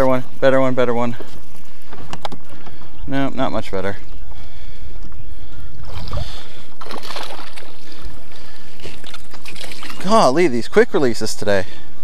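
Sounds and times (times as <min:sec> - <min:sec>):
wind and water rumble: 0:05.5 - 0:11.6
fish splashing: 0:05.8 - 0:10.4.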